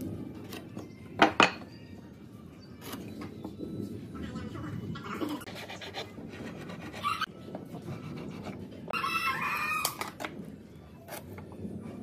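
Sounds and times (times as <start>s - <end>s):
rooster crowing: 8.9s - 10.1s.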